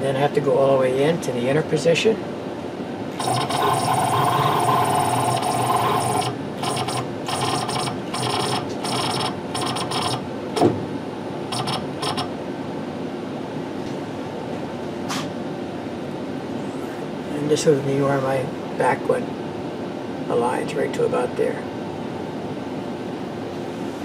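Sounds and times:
lathe drive motor whine: 3.1 - 10.8.

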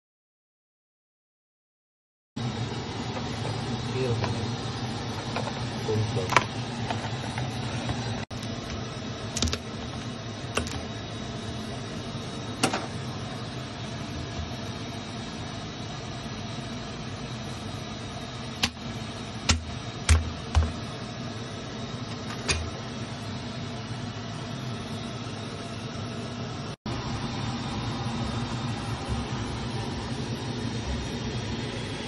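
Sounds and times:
steady background hum: 2.4 - 32.0
cleaver chopping on a board: 19.5 - 20.8.

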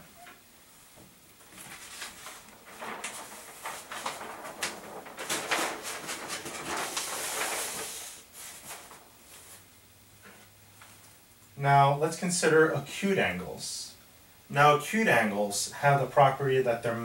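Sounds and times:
paper crinkling and rustling: 1.4 - 9.7
paper sliding swish: 1.6 - 9.6.

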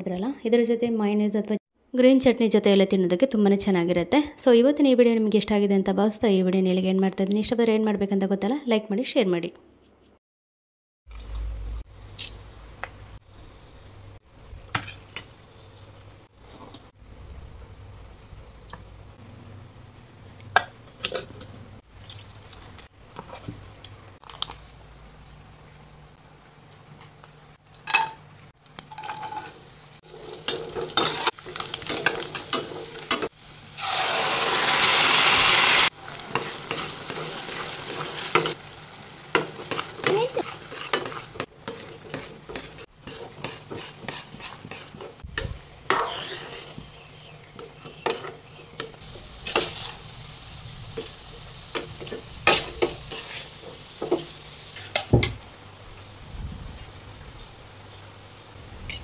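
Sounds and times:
food frying and sizzling in oil: 11.1 - 59.0
spatula scraping in a metal pan: 28.9 - 33.2, 39.3 - 45.2, 45.9 - 50.0.

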